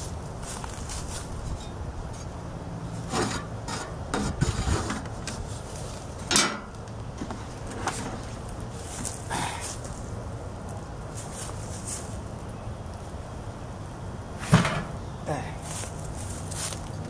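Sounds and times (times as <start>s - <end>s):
plastic rubbing and scraping: 3.0s - 5.6s.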